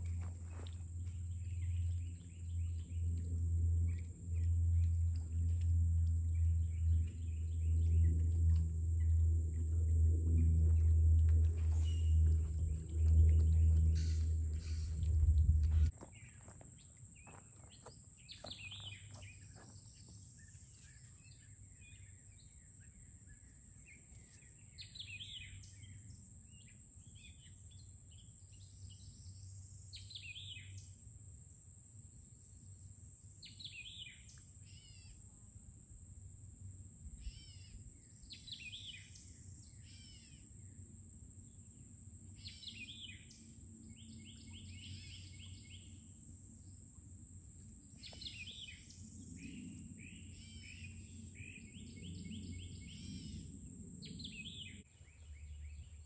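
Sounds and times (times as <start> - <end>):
steady high-pitched tone: 1.4 - 15.9.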